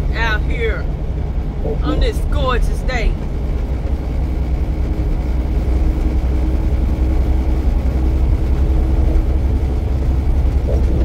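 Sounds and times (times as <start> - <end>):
road noise: 0.0 - 11.0
truck diesel engine drone: 0.0 - 11.0.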